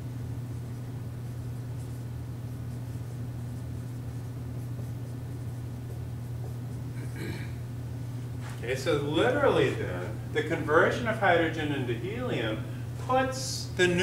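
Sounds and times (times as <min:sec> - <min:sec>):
low room hum: 0:00.0 - 0:14.0
marker writing on whiteboard: 0:00.6 - 0:07.1.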